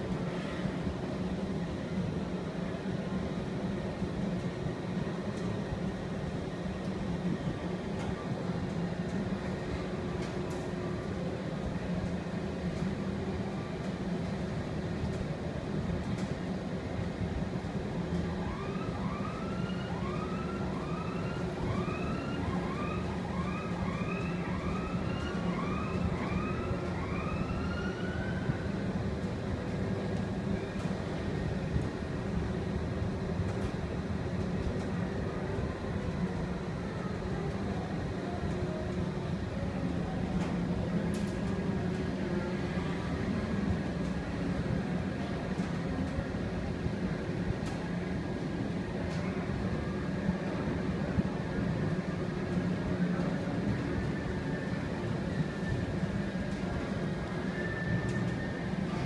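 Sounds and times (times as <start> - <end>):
low mechanical hum: 0.0 - 59.0
siren-like rising whoops: 18.3 - 28.9.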